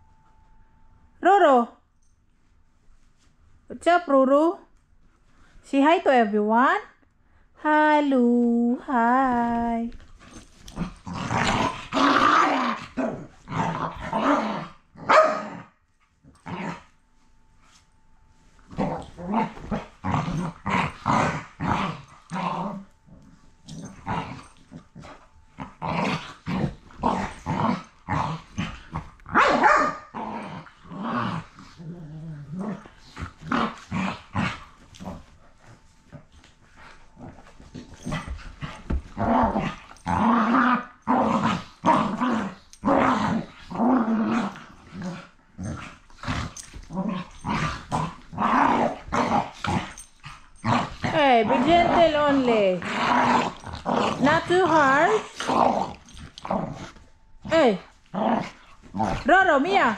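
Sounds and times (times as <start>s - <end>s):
dogs growling and barking: 10.2s - 16.9s, 18.7s - 59.9s.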